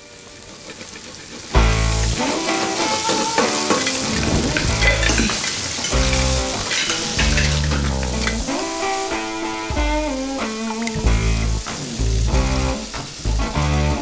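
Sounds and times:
shrimp sizzling in pans: 0.0 - 14.0
music with bass line: 1.6 - 2.8, 4.0 - 5.3, 5.9 - 6.6, 7.2 - 14.0.

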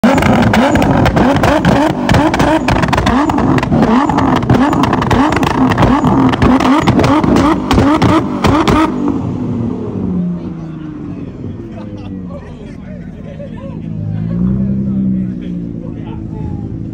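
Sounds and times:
exhaust pops and bangs: 0.0 - 9.0
car engine revving: 0.0 - 12.4, 13.0 - 16.9.

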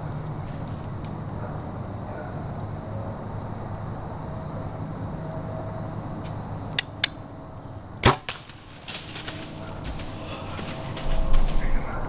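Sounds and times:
bow string snapping: 6.8 - 7.2
sharp clicks: 6.8 - 7.2.

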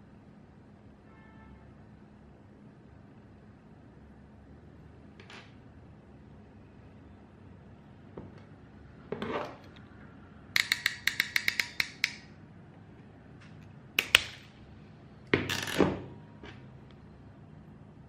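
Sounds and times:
crimp tool ratchet clicks: 10.6 - 12.3
sharp snaps: 10.6 - 12.3, 14.0 - 14.5.

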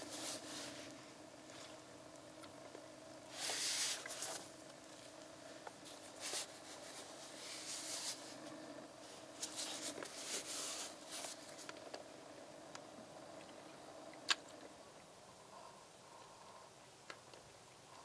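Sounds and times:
steady low hum: 0.0 - 18.0
gloves rubbing plastic bottle: 5.8 - 8.4.

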